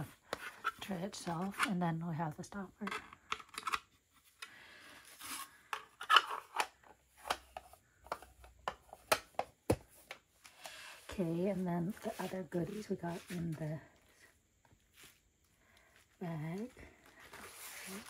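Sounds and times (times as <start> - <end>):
plastic clicks and scrapes: 2.8 - 4.5, 5.2 - 9.5.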